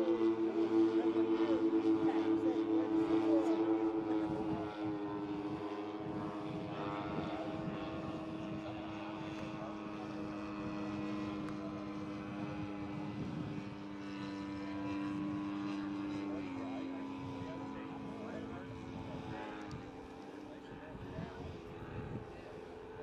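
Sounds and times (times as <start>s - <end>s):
twin propeller engines running: 0.0s - 23.0s.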